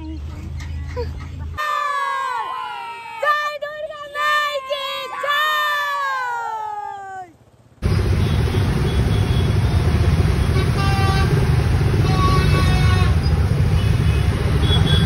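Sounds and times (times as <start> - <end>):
scooter and motorbike traffic: 7.6 - 15.0
vehicle horns honking: 7.8 - 15.0.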